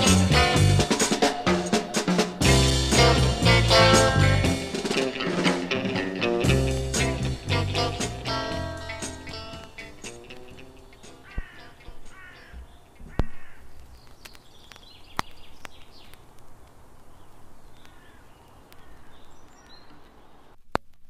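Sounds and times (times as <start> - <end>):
harsh bird calls: 7.1 - 16.3, 17.0 - 20.6
high bird chirps: 8.8 - 16.3, 17.1 - 20.4.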